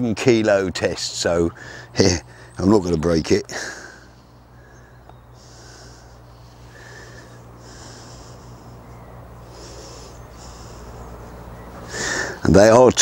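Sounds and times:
faint low hum: 0.5s - 12.9s
man breathing through nose: 1.6s - 2.6s, 3.5s - 12.4s.

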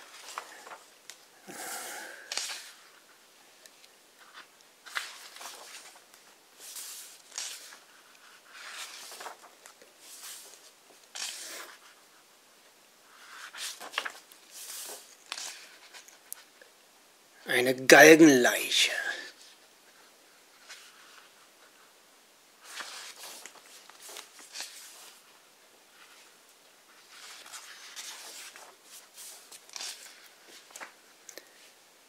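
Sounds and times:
book pages turning: 0.0s - 1.2s, 2.2s - 3.1s, 3.7s - 12.0s, 13.1s - 16.5s, 20.0s - 21.9s, 22.6s - 25.3s, 25.9s - 31.6s.

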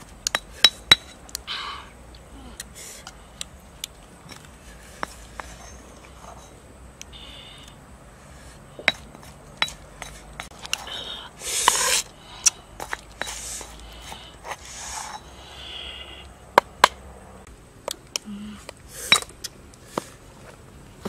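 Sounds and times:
pestle tapping stone and shell: 8.8s - 10.8s.

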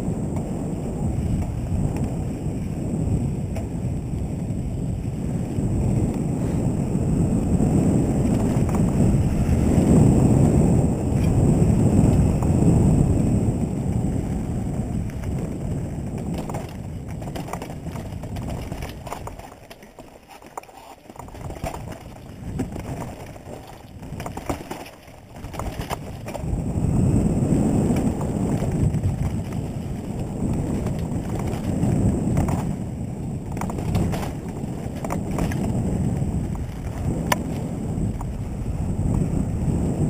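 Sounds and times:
wind rushing over microphone: 0.0s - 20.1s, 21.1s - 40.0s
bike clattering over rough ground: 0.0s - 40.0s.

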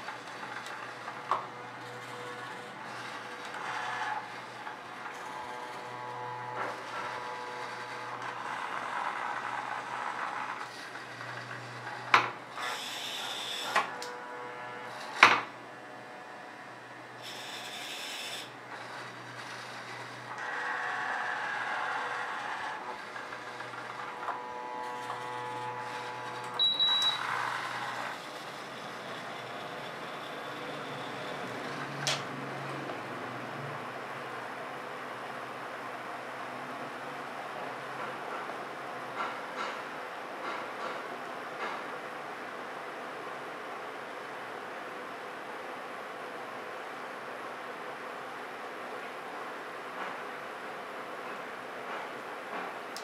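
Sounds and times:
robotic arm servo whining: 0.0s - 15.5s, 17.2s - 32.4s.

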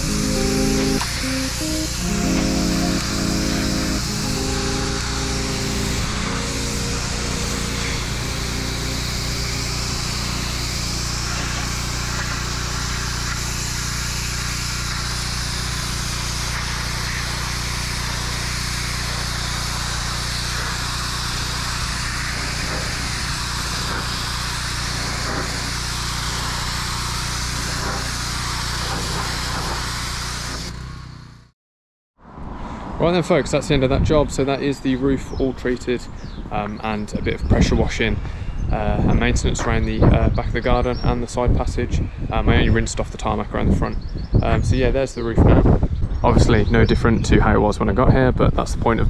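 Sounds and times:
water jet spraying on concrete: 0.0s - 30.9s
pressure washer motor hum: 0.0s - 31.5s.

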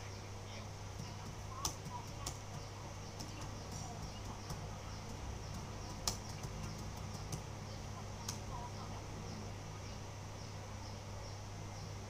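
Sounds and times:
faint sharp clicks: 8.2s - 8.5s.

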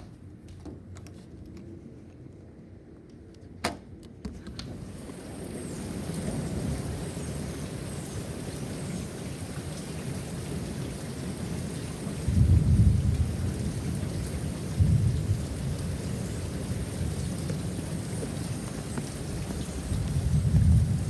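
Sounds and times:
steady rain: 4.4s - 21.0s
low thunder rumbles: 4.8s - 21.0s.

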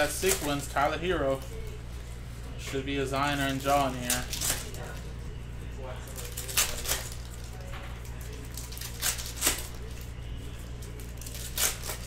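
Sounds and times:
foil wrappers crinkling and tearing: 0.0s - 12.0s
steady low hum: 0.0s - 12.0s.

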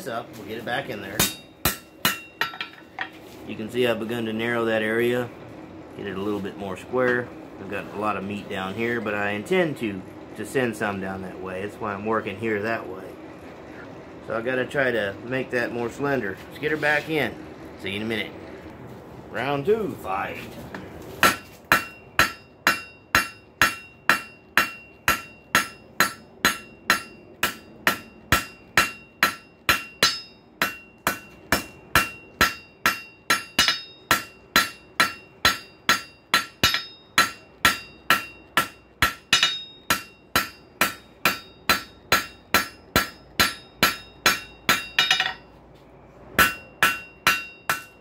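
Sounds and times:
hammer striking steel on anvil: 1.1s - 3.2s, 21.2s - 45.5s, 46.4s - 48.0s.

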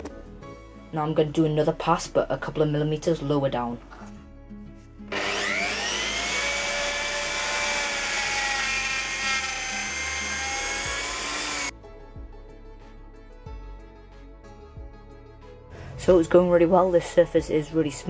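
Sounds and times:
background music: 0.0s - 18.0s
router high whine cutting wood: 5.1s - 11.7s.

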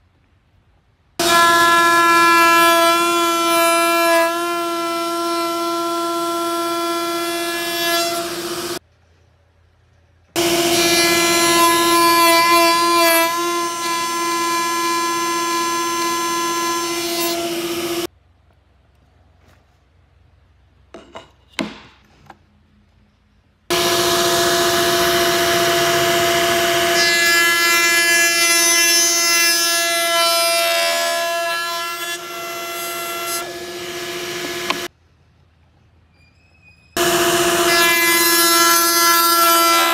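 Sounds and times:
router high whine cutting wood: 4.1s - 8.8s, 10.4s - 18.1s, 23.7s - 34.9s, 37.0s - 39.9s.

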